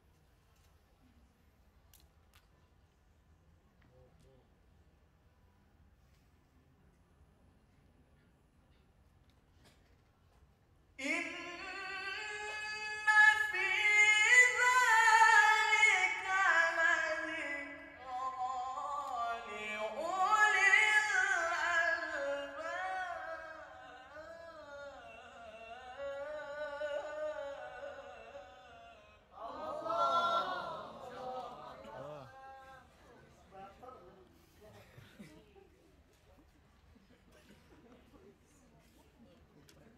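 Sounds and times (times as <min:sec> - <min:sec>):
man reciting melodically: 0:11.0 - 0:33.8.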